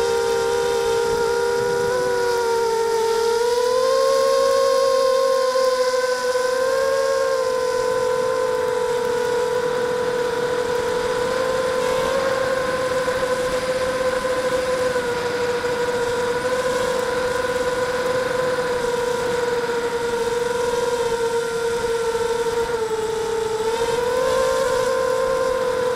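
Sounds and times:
quadcopter motors whining: 0.0s - 25.9s.

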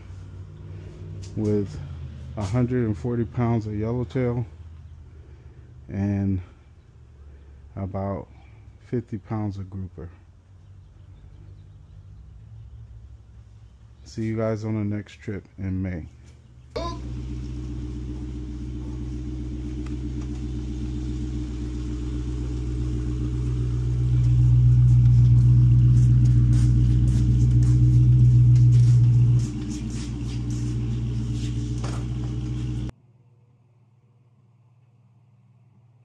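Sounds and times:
vehicle engine humming: 0.0s - 8.9s, 16.0s - 33.0s.

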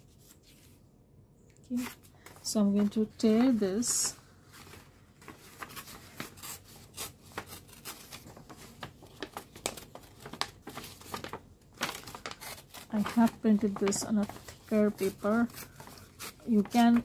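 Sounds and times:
paper tearing and crinkling: 4.6s - 17.0s.

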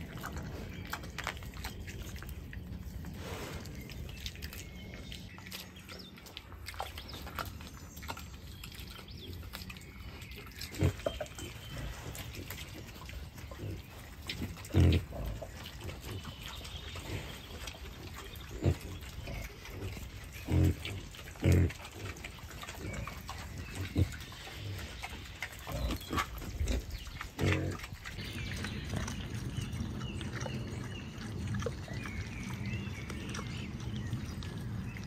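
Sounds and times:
wild boar grunting: 13.4s - 17.5s, 18.3s - 32.8s.

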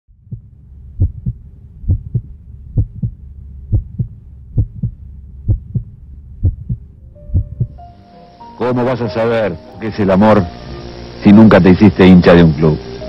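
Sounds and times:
low hum: 0.1s - 11.5s
heartbeat double thump: 0.2s - 7.8s.

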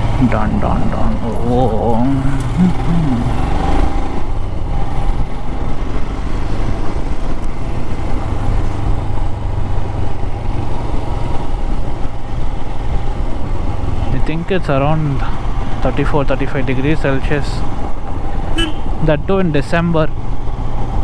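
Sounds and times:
road and wind noise: 0.0s - 21.0s.

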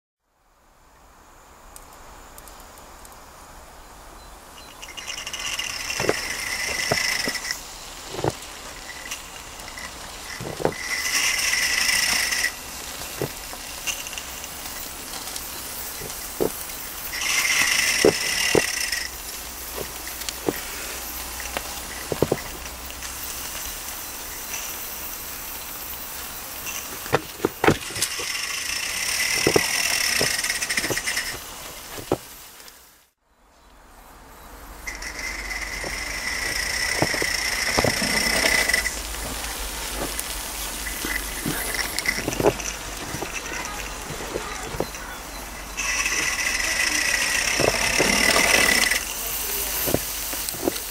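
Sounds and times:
sharp clicks and knocks: 4.8s - 19.1s, 21.5s - 22.7s, 26.7s - 32.3s, 34.9s - 45.1s
model steam locomotive hissing: 4.8s - 33.0s, 34.7s - 50.9s.

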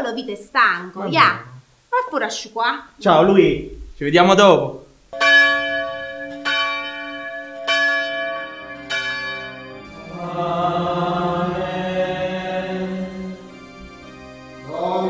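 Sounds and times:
man chanting: 1.1s - 1.6s
church bell tolling: 5.1s - 15.0s.

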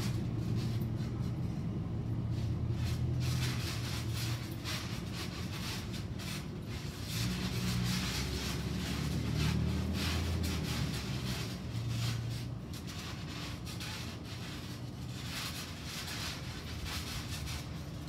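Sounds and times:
steady low hum: 0.0s - 18.0s
trampoline springs creaking: 0.0s - 18.0s.

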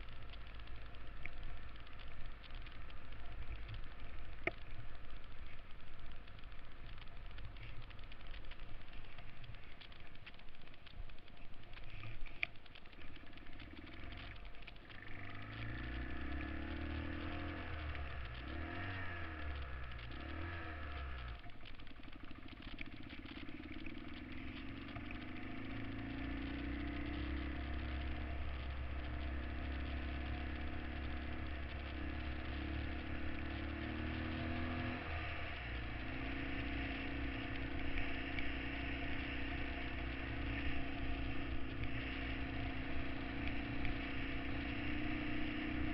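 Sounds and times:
motorcycle engine revving: 12.8s - 45.9s.

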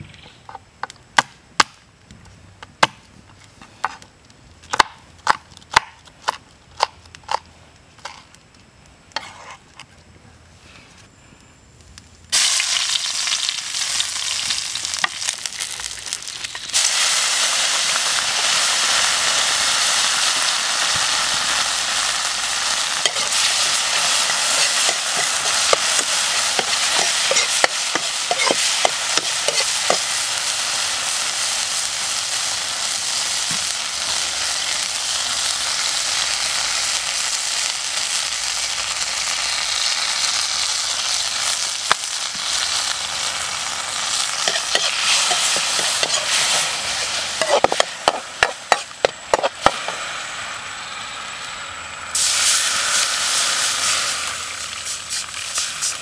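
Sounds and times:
metal spatula scraping wok: 9.2s - 9.7s, 23.0s - 30.2s, 44.4s - 50.0s
food sizzling in hot oil: 12.3s - 56.0s.

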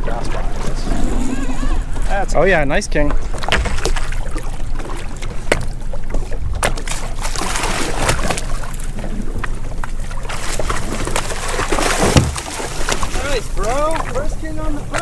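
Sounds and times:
water slapping boat hull: 0.0s - 15.0s
fish splashing: 3.2s - 15.0s
loud thump: 12.0s - 12.4s.

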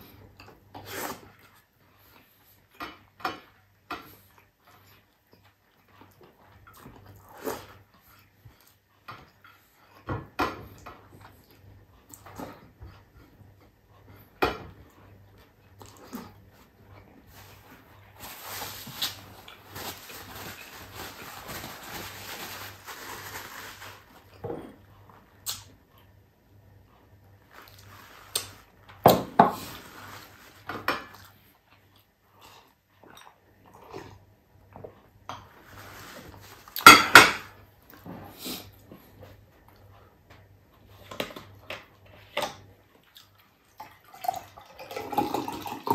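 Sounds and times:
paper towel rustling: 17.3s - 24.3s, 35.6s - 36.8s.

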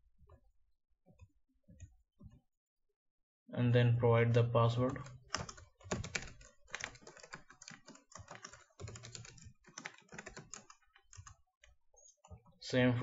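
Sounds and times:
computer keyboard key clicks: 5.0s - 11.4s.

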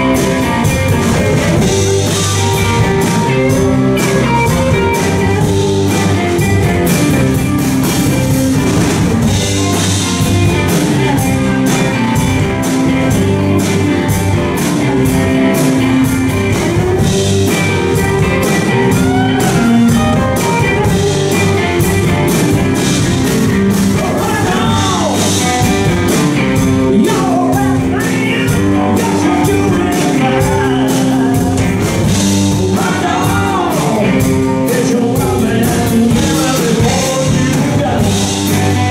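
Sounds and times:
lead electric guitar: 0.0s - 38.9s
rock band playing: 0.0s - 38.9s
man singing: 23.9s - 25.9s, 26.6s - 38.9s.

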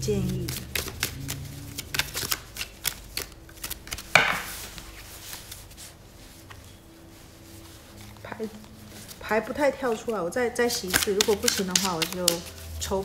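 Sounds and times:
cards being shuffled: 0.0s - 12.8s
card snap: 1.8s - 4.7s, 10.8s - 12.5s.

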